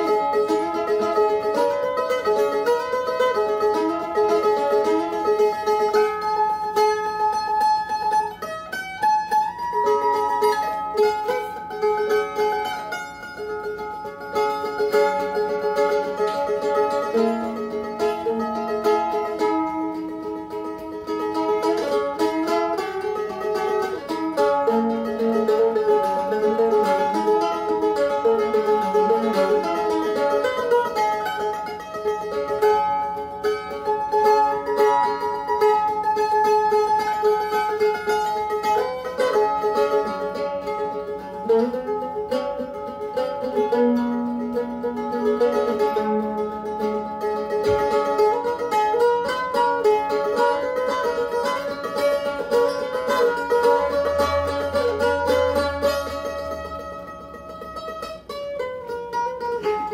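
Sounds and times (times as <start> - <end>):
solo mandolin: 0.0 - 59.9.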